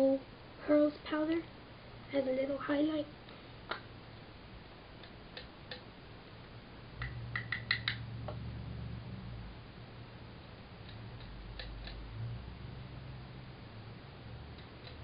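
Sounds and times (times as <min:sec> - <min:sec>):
low handling rumble: 0:06.7 - 0:15.0.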